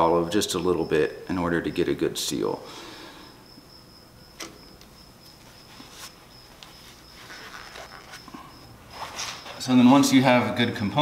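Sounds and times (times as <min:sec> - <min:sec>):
faint high-pitched whine: 0:00.0 - 0:11.0
paper towel rustling: 0:05.7 - 0:09.9.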